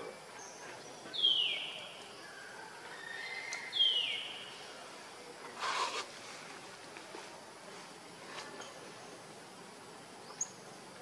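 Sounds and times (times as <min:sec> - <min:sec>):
forest ambience: 0:00.0 - 0:11.0
whistled animal call: 0:03.0 - 0:04.0.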